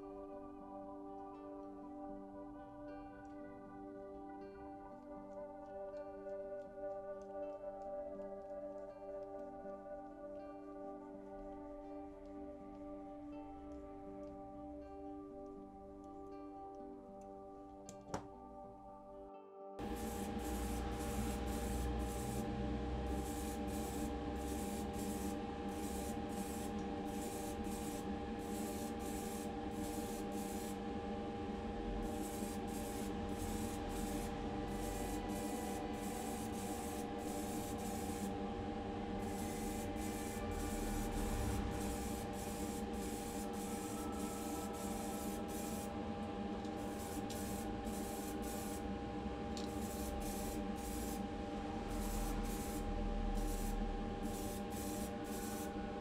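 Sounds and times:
aerosol can spraying bursts: 19.8 - 30.8, 32.0 - 38.4, 39.2 - 45.9, 46.7 - 48.9, 49.6 - 51.2, 51.9 - 55.7
steady low hum: 19.8 - 56.0.

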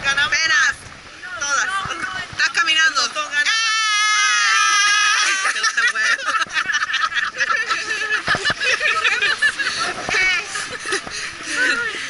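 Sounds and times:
women laughing and chattering: 1.4 - 12.0
woman squealing: 3.5 - 5.7.

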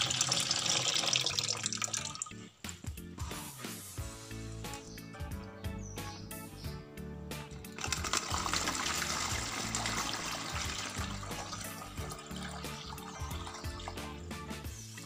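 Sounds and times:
water pouring and splashing: 0.0 - 2.5, 7.6 - 14.8
background music: 0.0 - 15.0.

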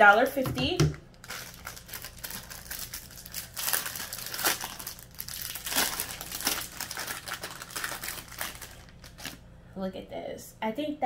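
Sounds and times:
packaging crinkling: 1.1 - 9.4.

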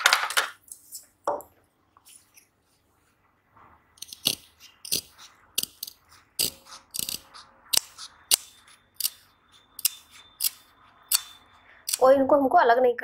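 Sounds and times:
scissors snipping fabric: 4.0 - 12.0.

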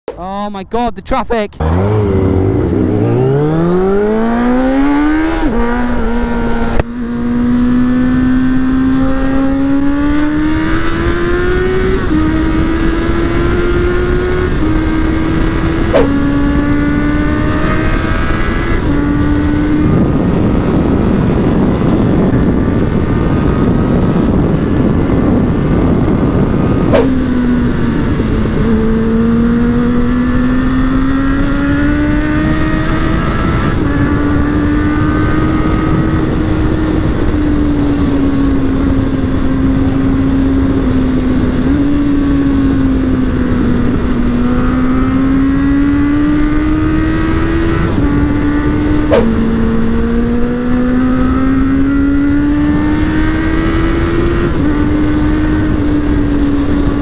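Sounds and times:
motorcycle engine revving through gears: 1.6 - 57.0
rush of noise: 48.6 - 50.8.

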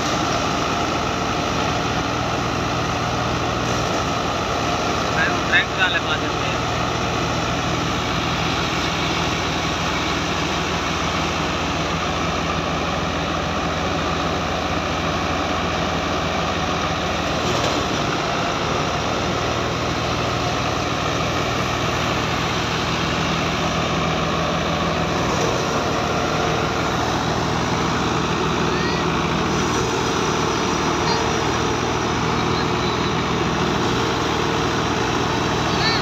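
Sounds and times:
tractor diesel engine running: 0.0 - 36.0
thresher rushing noise: 16.2 - 36.0.

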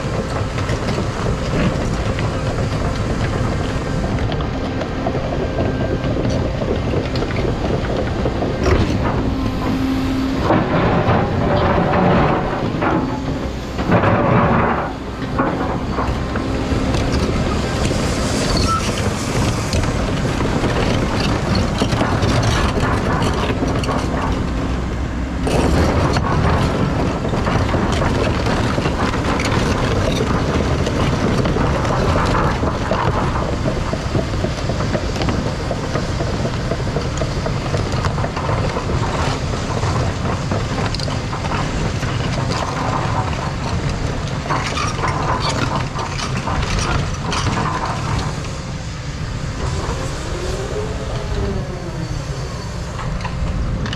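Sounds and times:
excavator engine and hydraulics: 0.0 - 53.9
stone clattering and scraping: 8.6 - 19.9.

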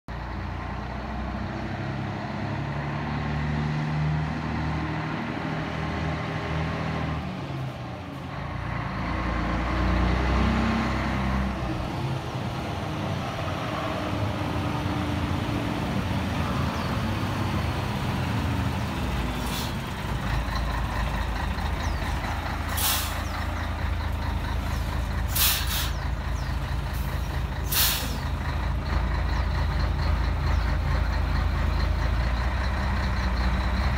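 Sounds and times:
truck diesel engine idling: 0.1 - 3.0, 11.0 - 33.9
air brake hisses: 22.7 - 23.3, 25.3 - 26.0, 27.6 - 28.2.

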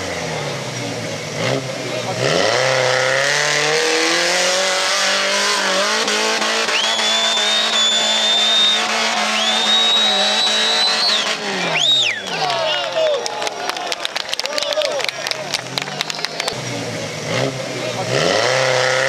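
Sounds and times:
off-road buggy engine revving: 0.0 - 13.3, 14.7 - 19.0
high whistle-like tone: 6.6 - 12.3.

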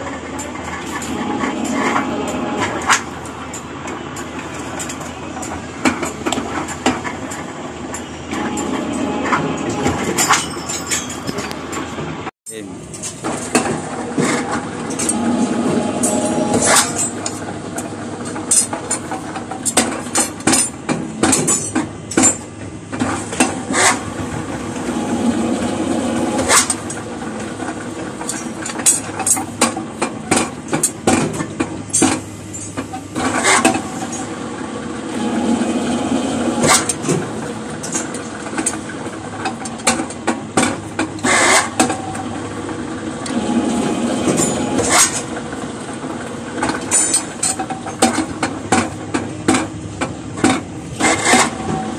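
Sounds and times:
bending machine humming: 0.0 - 51.9
metallic clanks of steel bars: 0.4 - 11.9, 12.9 - 24.0, 46.6 - 49.7.

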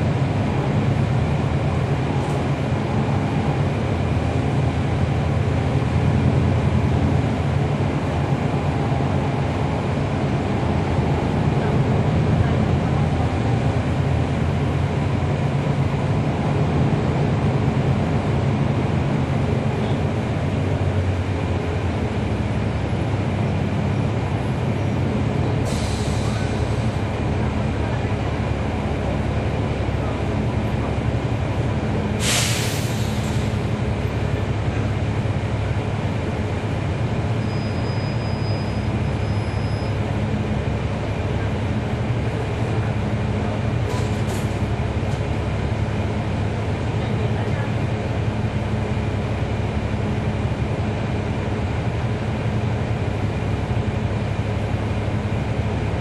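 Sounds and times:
bus diesel engine running: 0.0 - 56.0
road noise: 0.0 - 56.0
air brake hisses: 25.6 - 27.0, 32.2 - 33.6, 43.9 - 44.6.

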